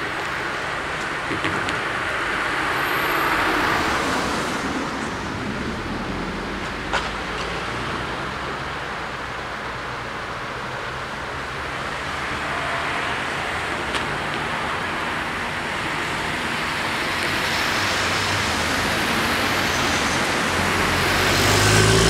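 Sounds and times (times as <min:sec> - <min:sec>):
cars driving past: 0:00.0 - 0:10.2, 0:10.8 - 0:22.0
car engine running close by: 0:17.2 - 0:22.0.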